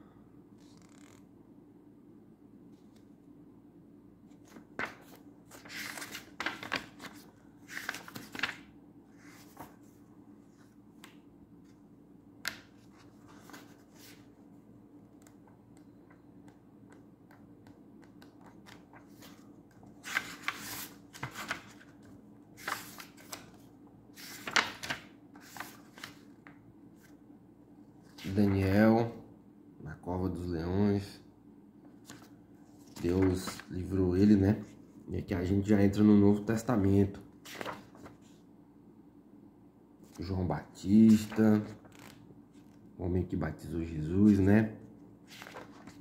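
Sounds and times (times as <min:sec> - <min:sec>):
faint steady hum: 0:00.0 - 0:46.0
paper pages turning: 0:00.6 - 0:01.2, 0:04.3 - 0:10.0, 0:12.4 - 0:14.3, 0:16.1 - 0:27.2, 0:32.0 - 0:33.7, 0:37.4 - 0:38.4, 0:41.0 - 0:42.8, 0:45.2 - 0:46.0.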